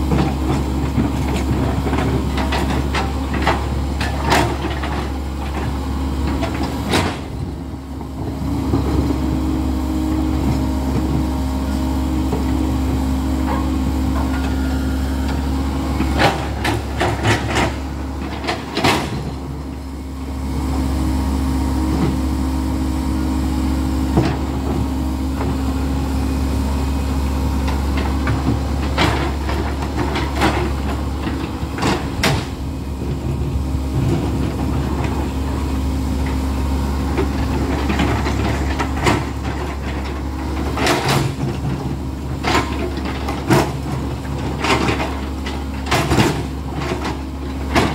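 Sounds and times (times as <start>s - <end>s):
excavator diesel engine running: 0.0s - 47.9s.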